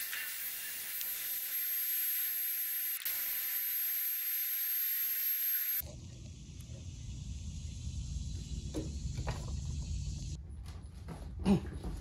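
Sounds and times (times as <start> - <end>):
heat gun blowing hot air: 0.0 - 3.7.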